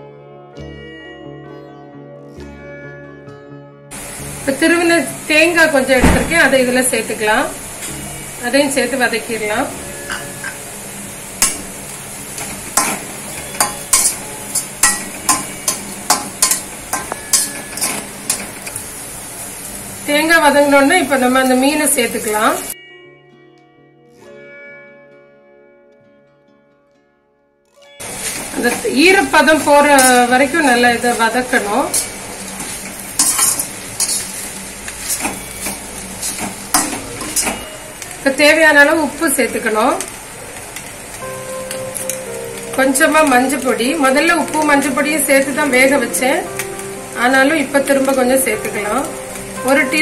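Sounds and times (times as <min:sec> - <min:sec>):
food sizzling in oil: 0:03.9 - 0:22.8, 0:28.0 - 0:50.0
spatula scraping steel pan: 0:28.2 - 0:37.7.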